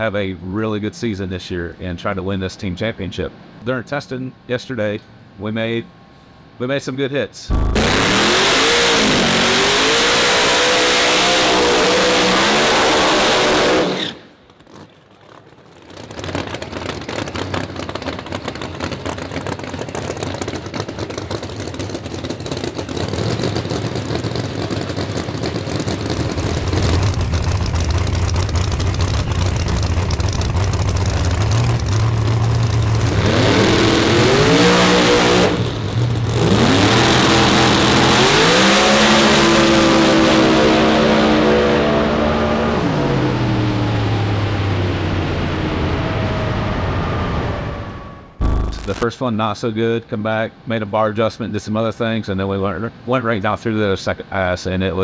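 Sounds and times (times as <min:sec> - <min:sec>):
track noise: 0:07.4 - 0:13.2, 0:26.4 - 0:49.3
drag car engine revving: 0:07.5 - 0:49.0.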